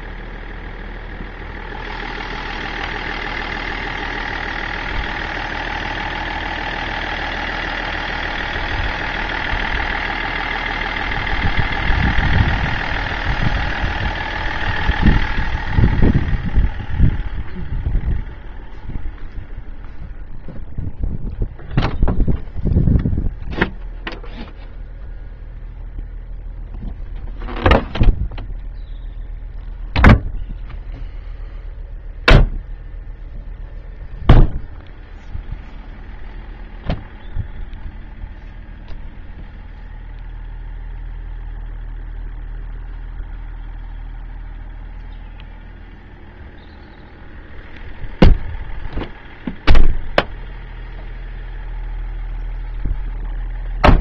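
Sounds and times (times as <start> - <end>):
low engine drone: 0.0 - 54.0
sharp knocks and thumps: 48.2 - 50.4.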